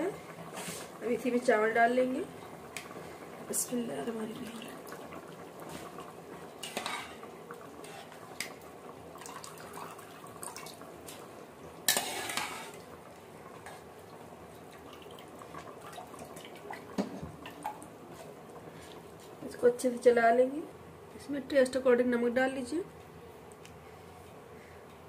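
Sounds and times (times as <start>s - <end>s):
metal utensils clattering on pot: 6.6s - 8.1s
broth bubbling: 7.2s - 11.9s, 12.7s - 18.9s.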